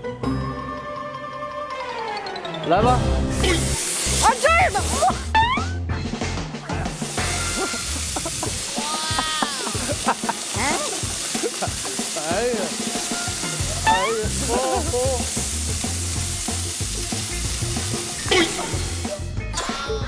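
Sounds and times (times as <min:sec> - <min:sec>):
air blower rushing hiss: 0:03.3 - 0:05.3, 0:06.8 - 0:19.3
people shouting: 0:08.7 - 0:10.0, 0:13.6 - 0:15.3.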